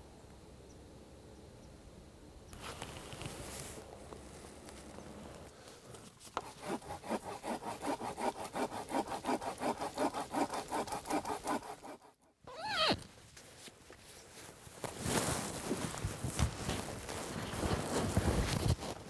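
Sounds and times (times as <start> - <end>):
fast rasping strokes: 6.2 - 12.4.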